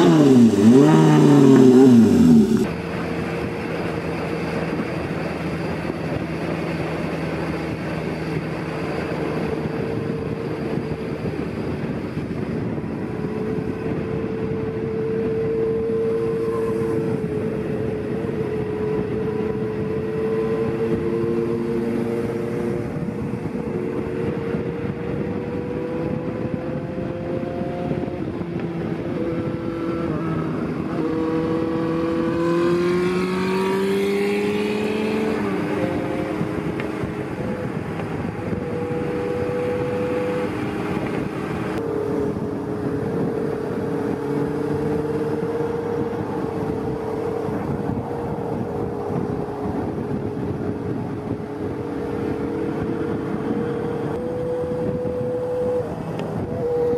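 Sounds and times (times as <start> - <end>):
motorcycle engines cruising: 0.0 - 56.9
road and wind noise: 0.0 - 56.9.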